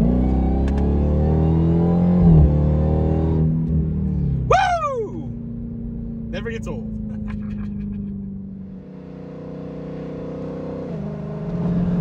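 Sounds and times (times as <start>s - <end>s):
car engine drone from cabin: 0.0s - 12.0s
higher engine drone: 4.2s - 9.2s.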